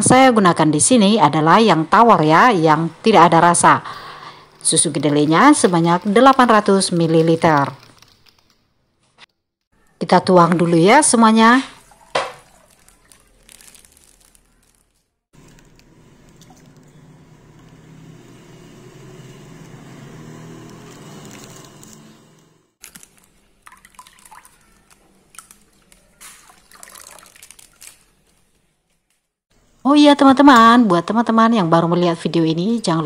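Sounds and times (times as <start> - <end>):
milk pouring and splashing: 11.7 - 16.8, 22.8 - 28.0
liquid trickling: 11.8 - 14.8, 22.8 - 28.1.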